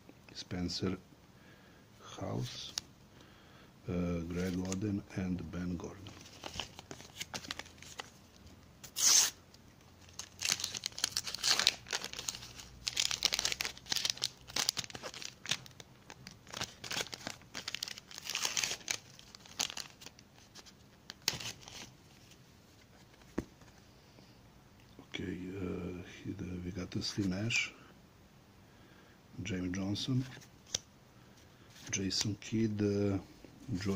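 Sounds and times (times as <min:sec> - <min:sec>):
wrapper crinkling: 0:06.0 - 0:08.2, 0:08.8 - 0:09.4, 0:10.0 - 0:22.3
wrapper tearing: 0:06.1 - 0:08.1, 0:08.8 - 0:09.4, 0:10.0 - 0:21.9.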